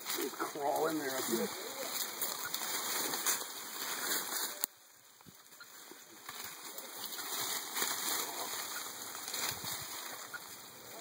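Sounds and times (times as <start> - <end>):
leaves and twigs rustling: 0.0 - 11.0.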